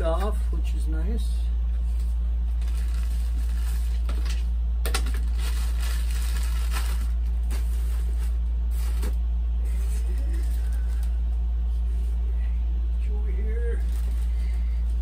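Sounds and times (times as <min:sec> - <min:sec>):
steady low hum: 0:00.0 - 0:15.0
plastic bags crinkling: 0:01.9 - 0:09.2, 0:09.8 - 0:11.2, 0:13.7 - 0:14.9.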